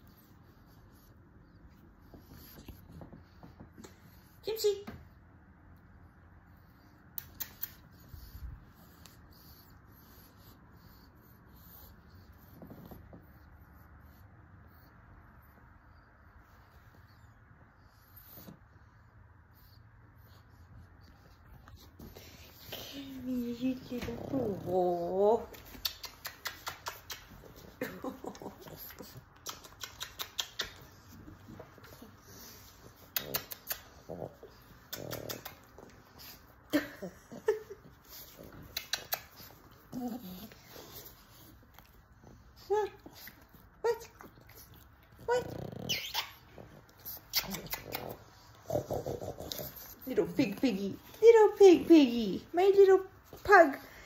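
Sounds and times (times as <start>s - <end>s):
lips smacking kisses: 7.1s - 7.9s, 25.5s - 27.8s, 28.6s - 31.1s, 33.1s - 33.9s, 38.6s - 39.6s, 47.2s - 48.2s.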